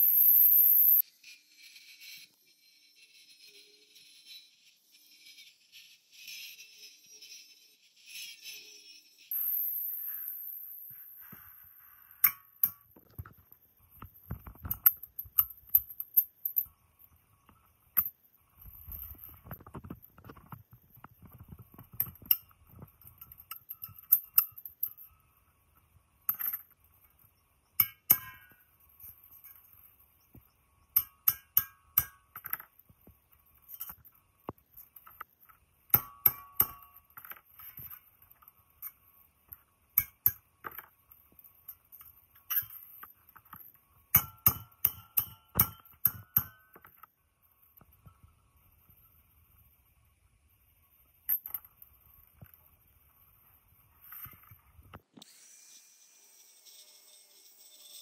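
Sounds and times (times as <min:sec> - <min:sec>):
metal tools clinking and tapping: 0:14.0 - 0:18.2, 0:18.8 - 0:25.2, 0:26.3 - 0:47.1.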